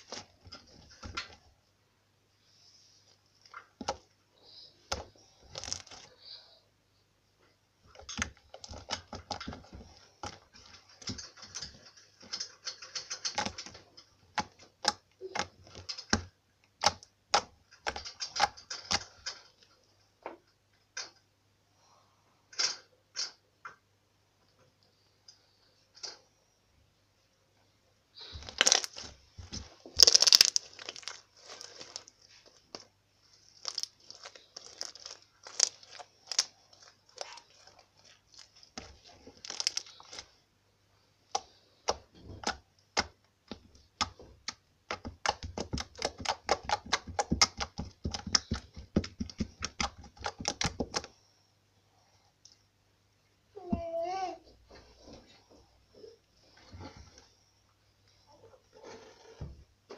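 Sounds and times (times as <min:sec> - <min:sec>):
slime popping and crackling: 0:04.9 - 0:06.1, 0:28.3 - 0:32.8, 0:33.4 - 0:40.3, 0:41.3 - 0:51.1.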